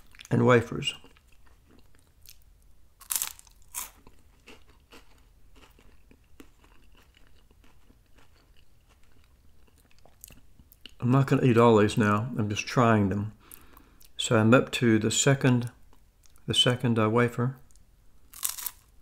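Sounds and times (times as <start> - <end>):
faint chewing: 0.9 - 2.4, 3.0 - 11.0.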